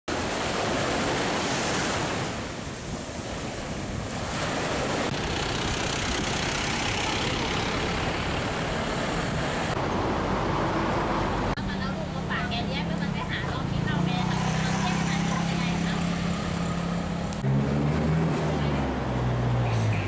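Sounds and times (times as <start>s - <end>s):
small waves breaking on beach: 0.1s - 9.8s
cars passing: 4.1s - 20.0s
motorbike passing: 4.3s - 20.0s.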